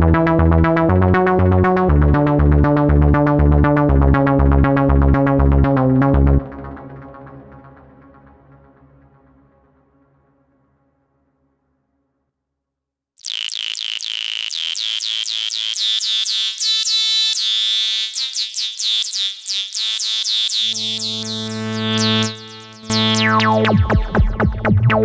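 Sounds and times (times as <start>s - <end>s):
synthesizer falling chirps: 13.2s - 25.0s
low sustained synth note: 20.5s - 23.8s.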